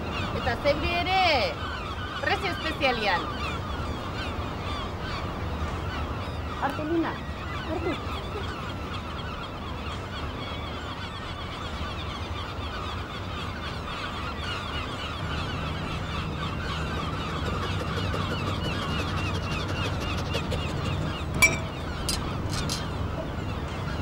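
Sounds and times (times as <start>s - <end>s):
flock of birds calling: 0.0s - 24.0s
low steady hum: 15.1s - 24.0s.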